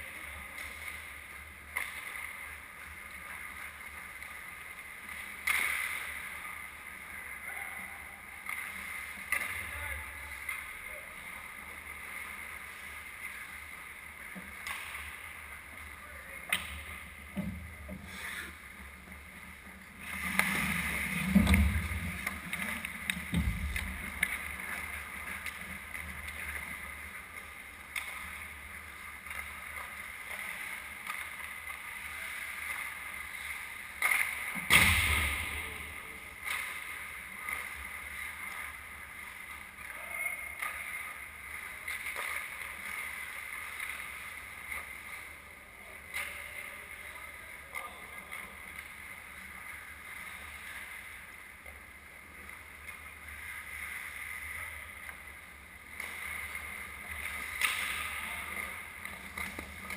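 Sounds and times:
hockey sticks and puck clacking: 0:00.1 - 0:07.3, 0:08.2 - 0:40.0, 0:40.6 - 0:45.4, 0:46.0 - 0:59.9
loud puck hit: 0:34.6 - 0:35.9.

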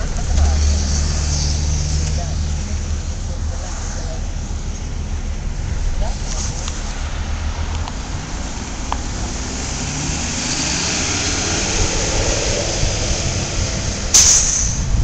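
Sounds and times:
bus engine accelerating: 0:00.0 - 0:15.0
hiss: 0:14.1 - 0:15.0.

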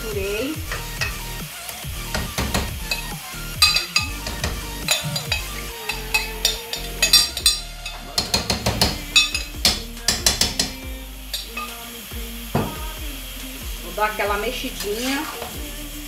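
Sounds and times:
spoon clinking and scraping pot: 0:02.1 - 0:11.8.

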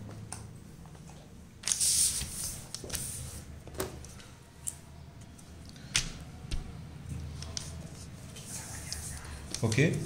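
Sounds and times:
paper rustling on a tabletop: 0:01.6 - 0:03.5.

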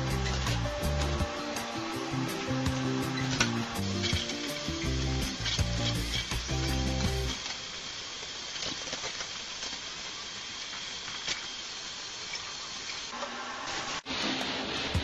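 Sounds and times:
music: 0:00.0 - 0:07.4, 0:14.2 - 0:15.0.

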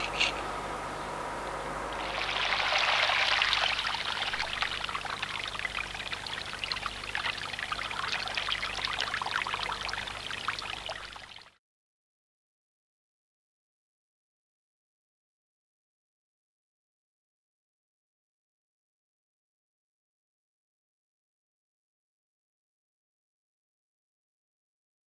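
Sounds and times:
water pouring and splashing: 0:02.0 - 0:11.5.

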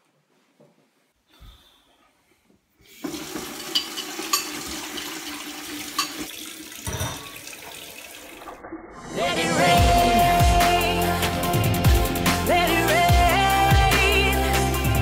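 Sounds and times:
water running into sink: 0:03.0 - 0:09.1.

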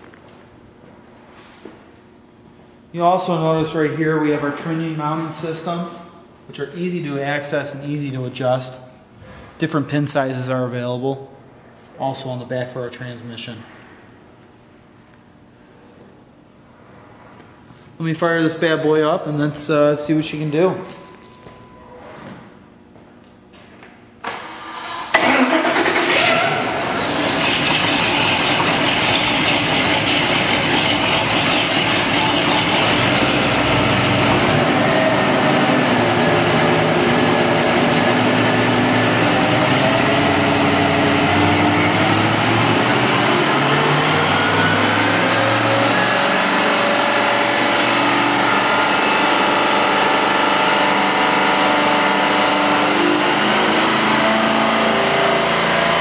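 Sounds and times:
falling whine: 0:25.1 - 0:50.3
boat engine running: 0:26.6 - 0:52.5.

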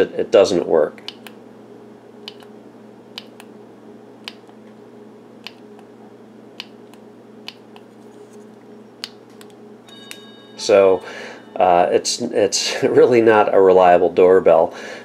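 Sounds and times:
faint steady hum: 0:00.0 - 0:15.0
doorbell button clicking: 0:09.9 - 0:10.8.

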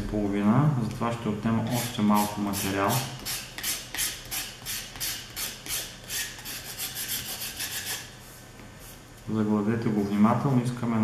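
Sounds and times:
knife scraping propeller blade: 0:01.7 - 0:08.1.

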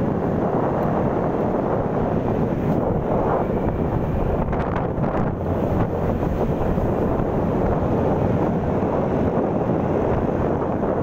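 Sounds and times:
road noise: 0:00.0 - 0:11.0
wind buffeting microphone: 0:00.0 - 0:11.0.

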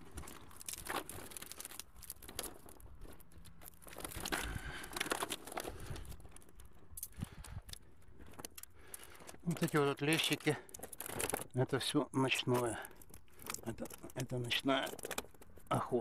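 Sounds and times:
net mesh rustling: 0:00.0 - 0:06.8, 0:08.3 - 0:11.6.

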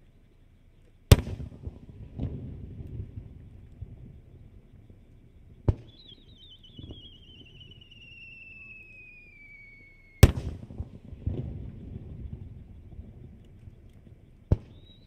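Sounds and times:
firework bursting with loud bang: 0:01.1 - 0:03.4, 0:05.6 - 0:12.8, 0:14.5 - 0:15.0
firework launch crack: 0:01.1 - 0:03.4, 0:05.6 - 0:12.6
firework whistling falling in pitch: 0:05.7 - 0:10.8, 0:14.5 - 0:15.0.

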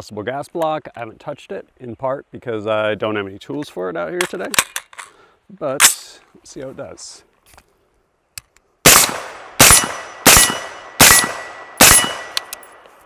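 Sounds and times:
suppressed rifle shots: 0:08.8 - 0:12.8.

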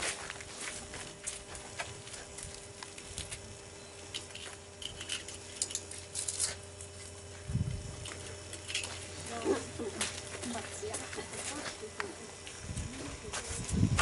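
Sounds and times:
footsteps crunching on snow: 0:00.0 - 0:03.6, 0:06.5 - 0:14.0
faint steady hum: 0:00.0 - 0:14.0.

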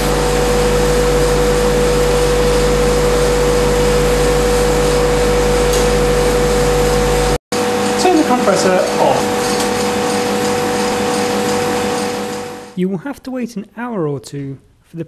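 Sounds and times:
vacuum pumps humming: 0:00.0 - 0:12.8.

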